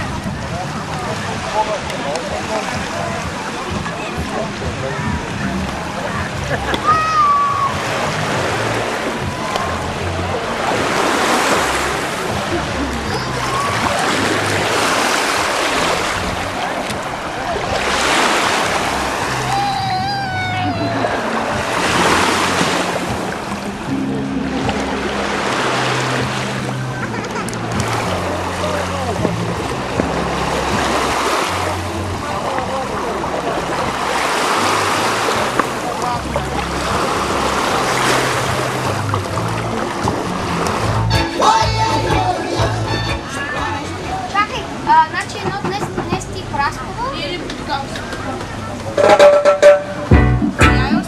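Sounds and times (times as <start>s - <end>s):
wind on microphone: 0.0s - 1.5s
waves washing onto beach: 0.0s - 42.6s
music with bass line: 17.8s - 44.8s, 48.9s - 51.0s.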